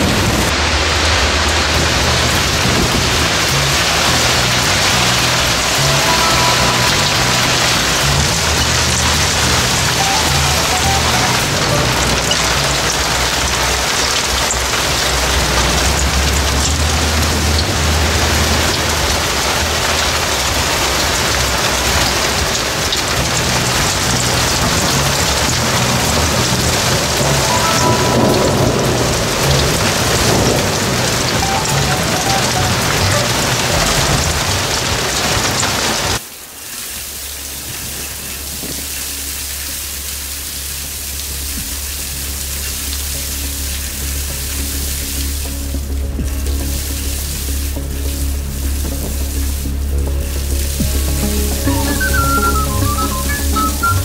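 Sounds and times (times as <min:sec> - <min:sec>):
low rumble: 0:00.0 - 0:10.6, 0:11.4 - 0:35.4
heavy rain pouring: 0:00.0 - 0:54.0.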